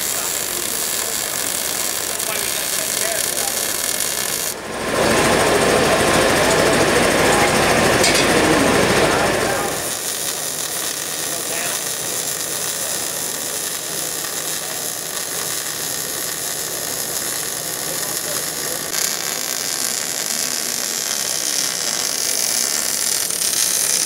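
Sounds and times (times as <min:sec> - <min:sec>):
welding arc crackling hiss: 0:00.0 - 0:04.6, 0:09.5 - 0:24.0.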